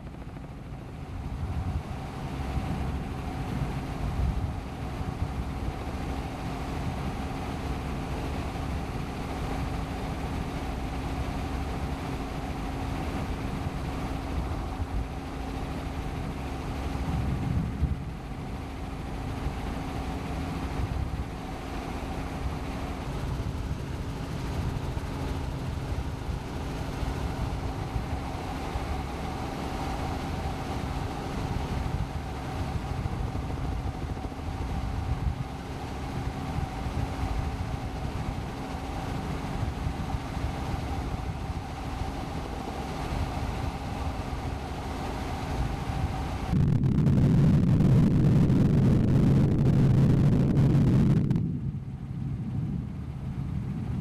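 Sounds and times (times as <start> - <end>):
helicopter engine and rotor drone: 0.0 - 54.0
fluttering low rumble: 45.6 - 54.0.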